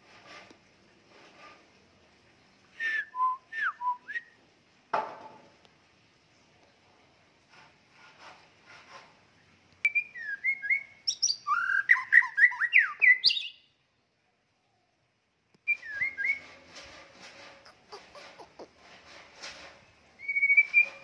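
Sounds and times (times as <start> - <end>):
bird singing whistled notes: 2.8 - 4.4, 9.8 - 13.7, 15.6 - 16.6, 20.2 - 21.0
bird chattering notes: 17.6 - 18.7.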